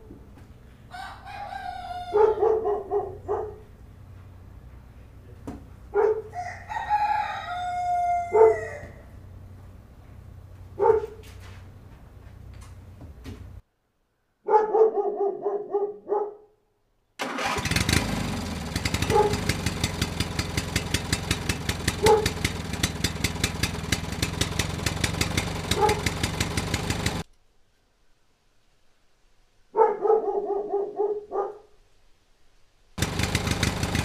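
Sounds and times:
dog barking: 2.0 - 3.7, 5.9 - 6.4, 8.2 - 9.0, 10.8 - 11.3, 14.4 - 16.6, 19.0 - 19.4, 22.0 - 22.4, 25.7 - 26.2, 29.7 - 31.8
tractor engine chugging: 17.2 - 27.2, 33.0 - 34.0.

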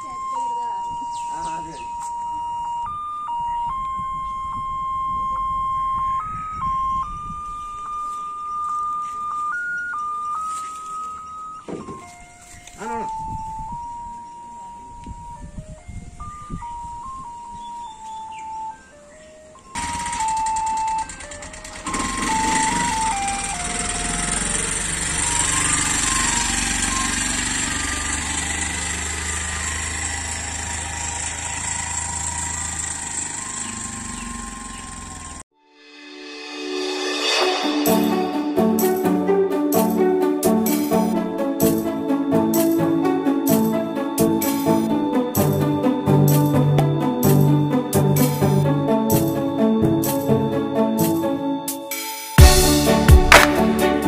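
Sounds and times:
electronic beeping jingle: 0.0 - 28.1, 33.2 - 54.0
three-wheeler engine running: 19.7 - 35.5.

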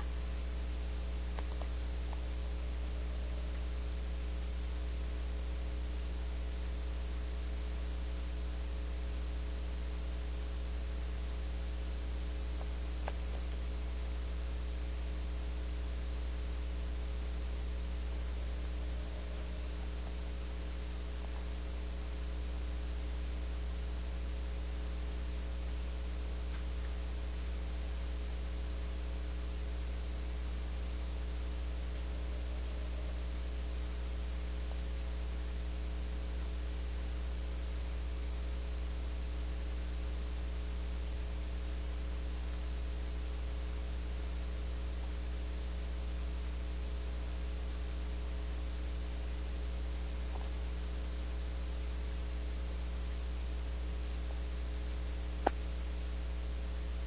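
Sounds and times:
electrical mains hum: 0.0 - 57.0
faint click: 1.3 - 2.3, 55.4 - 55.7.

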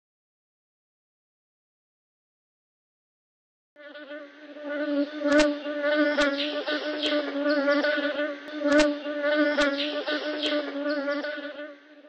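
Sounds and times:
insect buzzing: 3.8 - 12.0.

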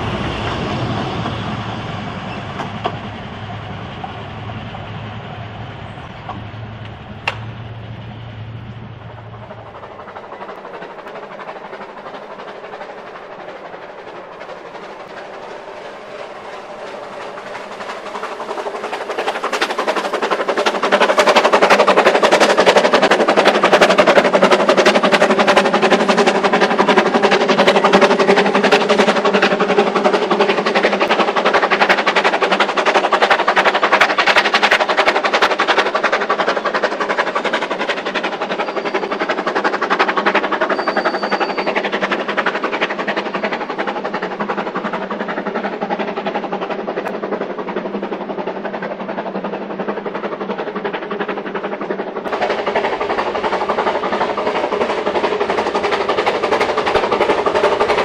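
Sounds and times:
steam locomotive chuffing: 0.0 - 58.0.

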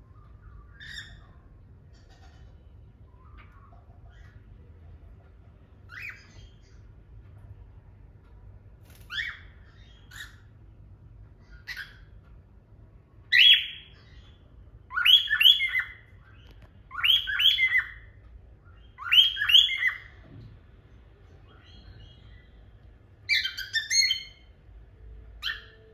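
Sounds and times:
cockatiels chirping: 0.1 - 4.6, 5.8 - 6.9, 8.9 - 10.6, 11.4 - 12.2, 13.3 - 20.3, 23.2 - 24.5, 25.4 - 25.9.

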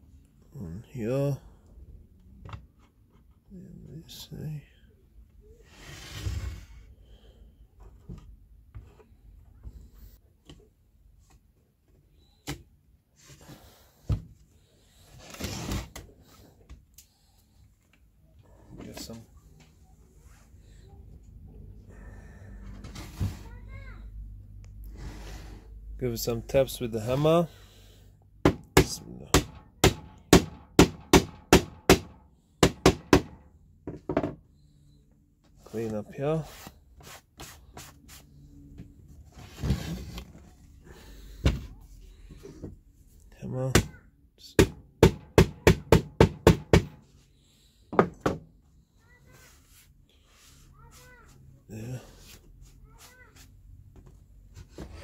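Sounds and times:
sharp wooden knocks: 28.4 - 33.4, 44.6 - 47.0
hammer tapping wood: 44.6 - 47.0.

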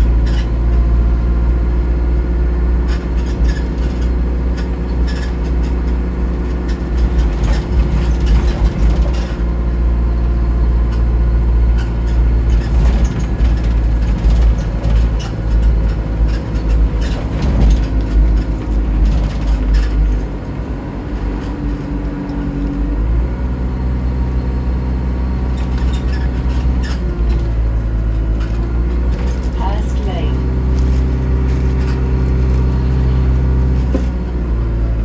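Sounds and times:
bus engine drone: 0.0 - 35.0
rattles and clicks: 2.9 - 9.5, 11.7 - 22.9, 25.6 - 34.4.

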